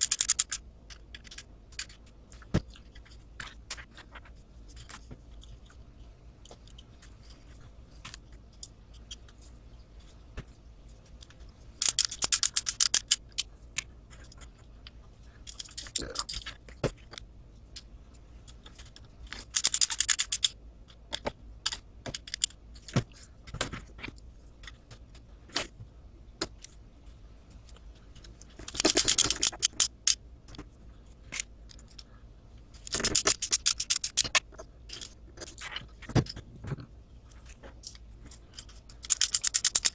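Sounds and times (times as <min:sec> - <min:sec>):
parts being handled: 0:00.0 - 0:39.9
screwdriver clicking: 0:39.0 - 0:39.9.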